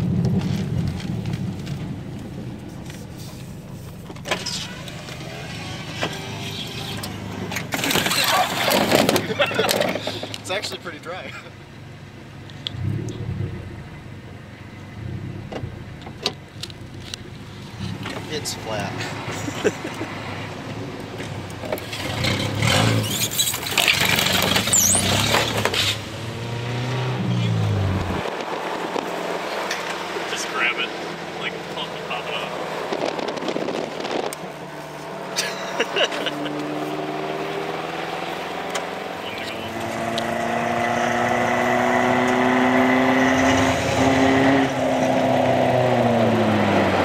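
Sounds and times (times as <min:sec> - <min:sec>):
car interior rattling: 0:07.5 - 0:10.7
car engine from inside cabin: 0:29.0 - 0:47.0.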